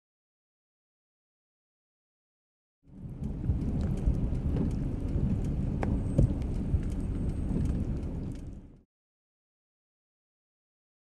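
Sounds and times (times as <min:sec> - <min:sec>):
low rumble of wind: 0:02.8 - 0:08.8
raindrop taps: 0:03.0 - 0:08.8.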